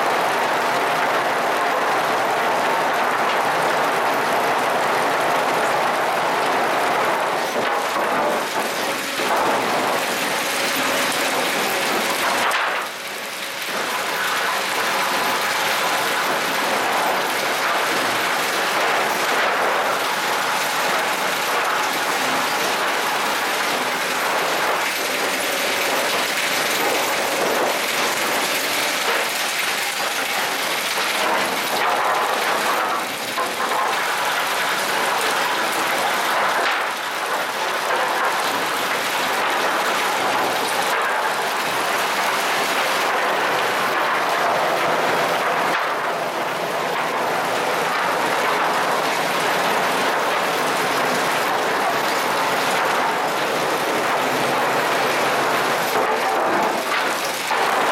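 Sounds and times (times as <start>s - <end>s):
chain conveyors clattering: 7.4s - 43.0s.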